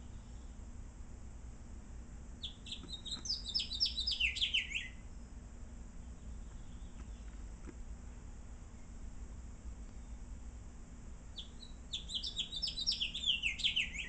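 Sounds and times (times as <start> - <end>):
finch singing: 2.4 - 5.1, 6.0 - 7.5, 11.3 - 14.0.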